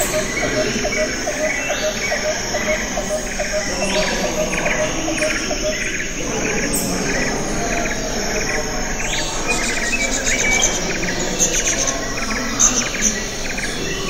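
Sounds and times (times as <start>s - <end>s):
lower peeps: 0.0s - 8.0s
birds chirping: 0.0s - 14.0s
crickets chirping: 0.0s - 14.0s.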